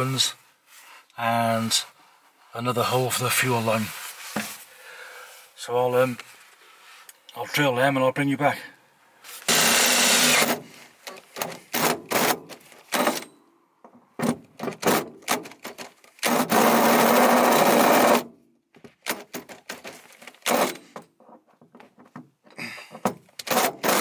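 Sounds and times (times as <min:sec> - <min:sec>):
drill with hole saw cutting steel: 0:09.5 - 0:10.6, 0:11.8 - 0:12.4, 0:16.2 - 0:18.3, 0:20.4 - 0:20.8, 0:23.4 - 0:24.0.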